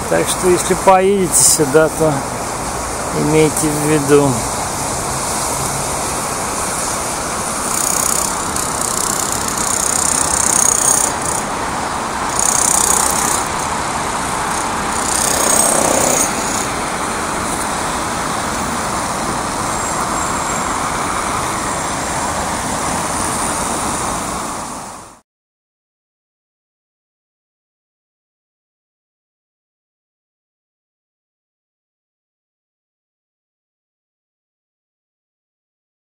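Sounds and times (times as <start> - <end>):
traffic hum on wet road: 0.0 - 25.2
tyres hissing on wet asphalt: 0.0 - 25.2.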